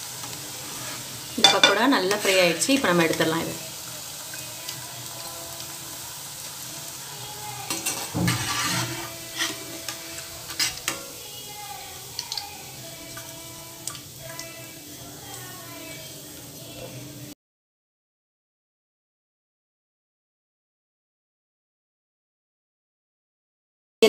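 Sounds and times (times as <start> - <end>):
food deep-frying in hot oil: 0.0 - 17.4
metal spoon clinking against pan: 1.4 - 2.4, 7.7 - 11.2.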